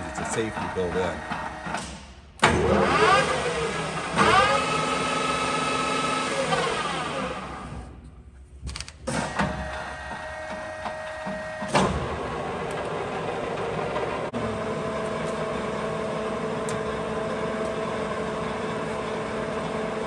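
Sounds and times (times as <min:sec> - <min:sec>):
lathe gearing whine: 0:02.6 - 0:07.9, 0:09.4 - 0:20.0.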